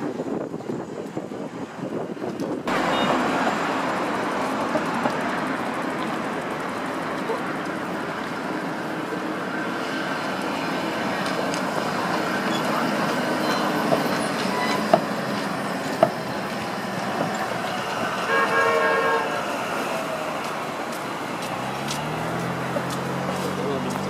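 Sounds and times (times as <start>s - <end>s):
road traffic noise: 0.0s - 24.0s
tram passing: 0.0s - 24.0s
tram horn: 17.1s - 20.0s.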